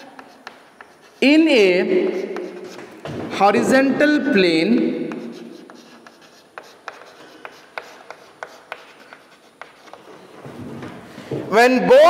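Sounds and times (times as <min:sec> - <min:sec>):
chalk tapping and scraping: 0:00.0 - 0:10.6.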